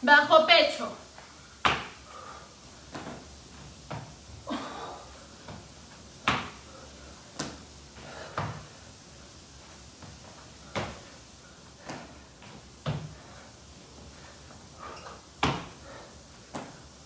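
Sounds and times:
feet and hands thumping wooden floor: 0:01.6 - 0:02.0, 0:02.8 - 0:04.2, 0:05.4 - 0:06.7, 0:07.3 - 0:08.8, 0:10.0 - 0:11.2, 0:11.8 - 0:13.4, 0:14.0 - 0:16.9.

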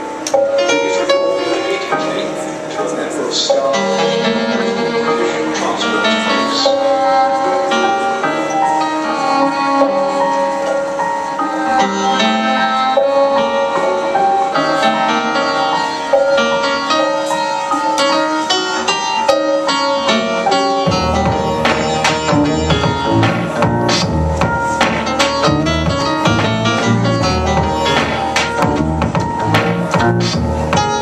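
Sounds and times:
piano playing: 0:00.0 - 0:31.0
cello long held note: 0:03.5 - 0:28.0
deep low notes: 0:20.8 - 0:31.0.

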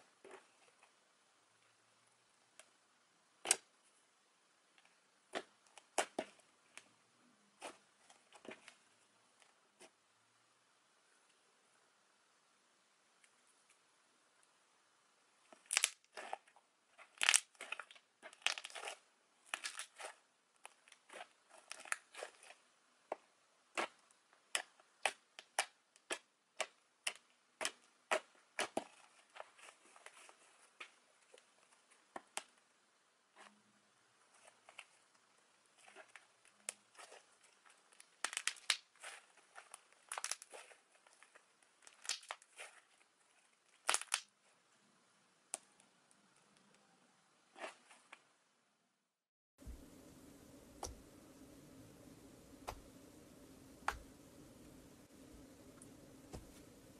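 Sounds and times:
slime crackling and popping: 0:15.6 - 0:22.6, 0:23.7 - 0:29.5, 0:35.8 - 0:42.8, 0:43.8 - 0:44.3.

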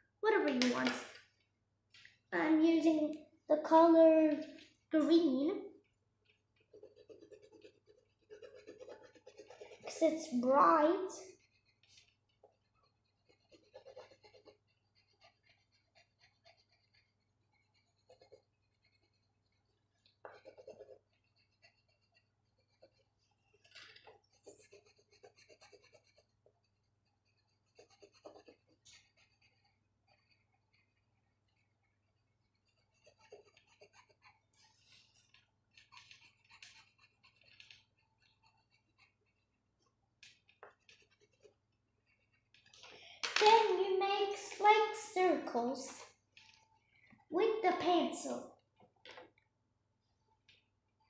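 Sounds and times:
pen scratching on paper: 0:06.6 - 0:26.5, 0:27.2 - 0:31.8, 0:32.5 - 0:39.6, 0:40.6 - 0:42.5.

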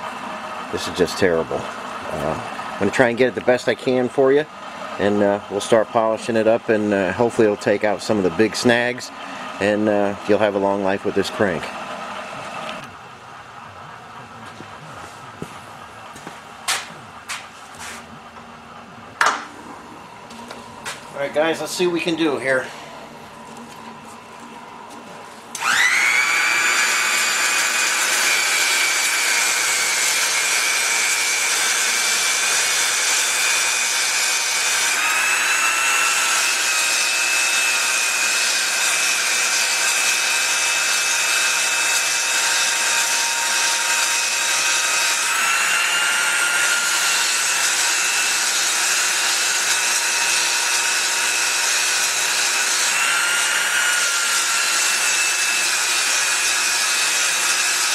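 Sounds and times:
belt polisher motor whining: 0:07.8 - 0:16.2, 0:20.3 - 0:57.9.

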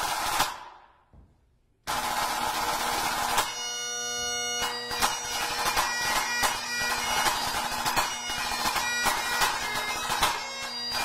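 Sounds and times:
bagpipe playing a tune: 0:03.2 - 0:11.0.

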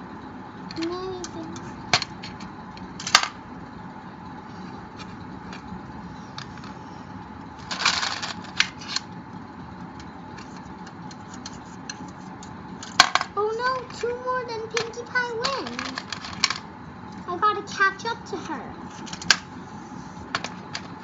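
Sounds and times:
plastic checkers clicking and clattering: 0:07.6 - 0:09.1, 0:14.8 - 0:16.6, 0:20.3 - 0:21.0.

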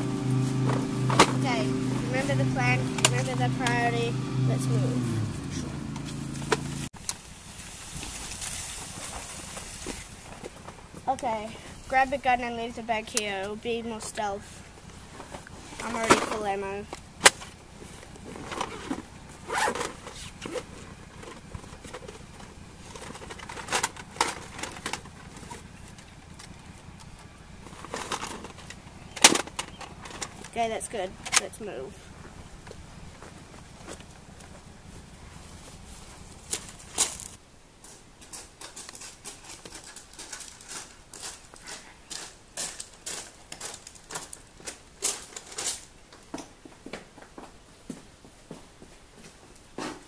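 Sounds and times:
footsteps crunching on gravel: 0:00.0 - 0:11.9, 0:32.0 - 0:45.2
zip sounds: 0:18.6 - 0:20.7
children running on gravel: 0:31.9 - 0:45.9.

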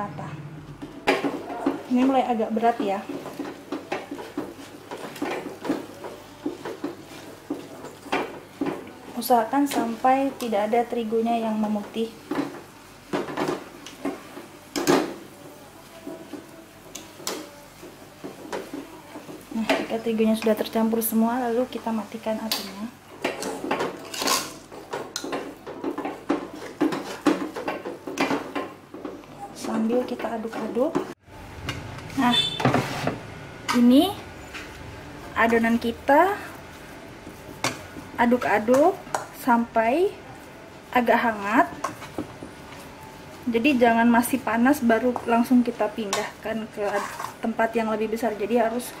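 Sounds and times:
whisk scraping a saucepan: 0:23.3 - 0:29.1, 0:46.1 - 0:47.6
whisk scraping metal saucepan: 0:46.1 - 0:47.5.

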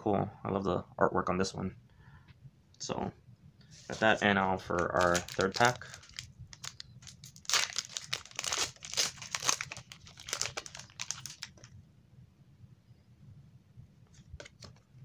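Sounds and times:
foil card pack tearing and crinkling: 0:04.7 - 0:11.7.

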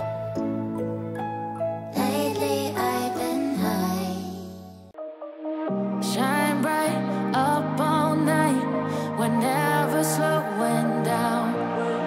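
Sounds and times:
gliding voice-like melody: 0:06.0 - 0:12.0.

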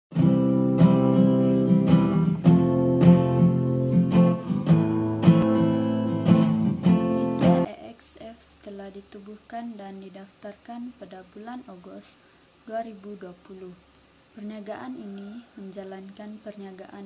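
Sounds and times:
acoustic guitar strumming chords: 0:00.1 - 0:07.7.

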